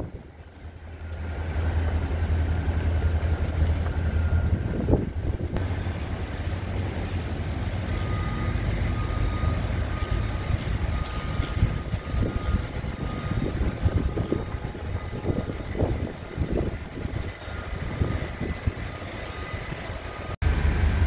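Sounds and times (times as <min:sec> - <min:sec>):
freight train rumbling: 0:00.0 - 0:21.0.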